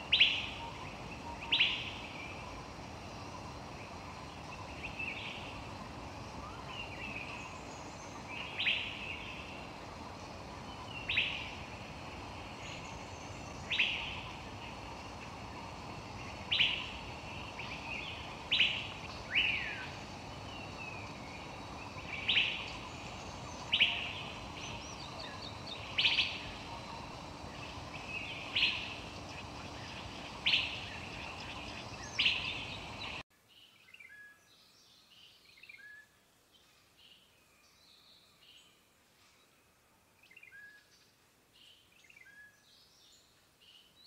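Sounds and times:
steady hiss: 0.0 - 33.2.

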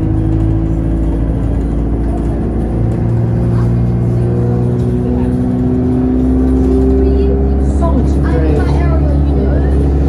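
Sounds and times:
bus engine droning: 0.0 - 10.0.

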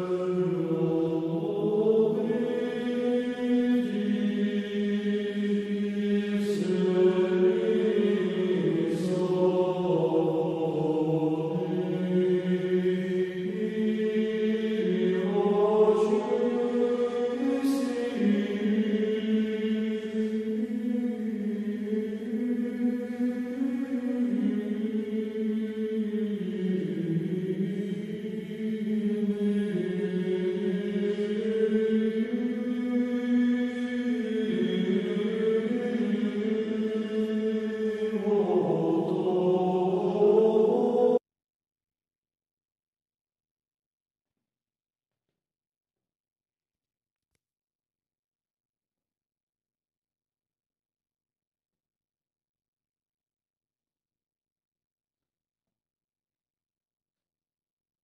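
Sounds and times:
voices chanting long held notes: 0.0 - 41.2.

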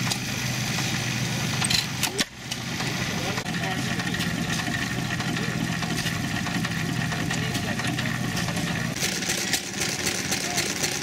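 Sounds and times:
gas engine running: 0.0 - 11.0.

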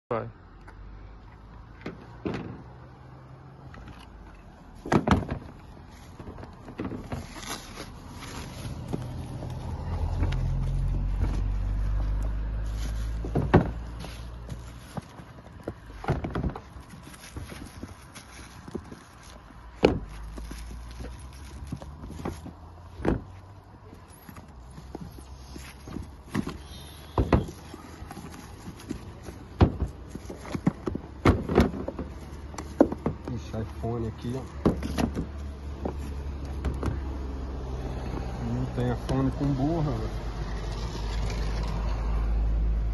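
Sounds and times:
plastic bags rustling: 4.7 - 32.8
packages knocking and clunking: 4.8 - 9.4, 13.1 - 33.8, 34.4 - 37.1.

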